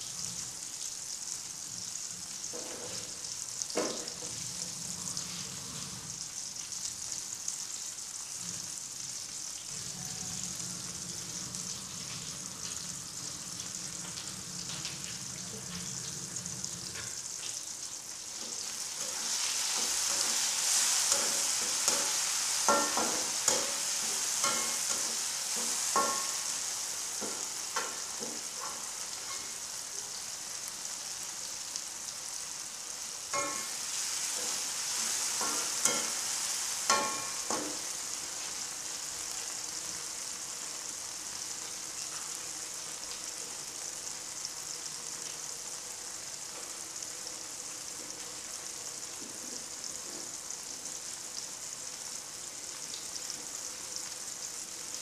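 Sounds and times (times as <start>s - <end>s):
food sizzling in hot oil: 0.0s - 55.0s
metal spatula scraping pan: 19.0s - 26.5s.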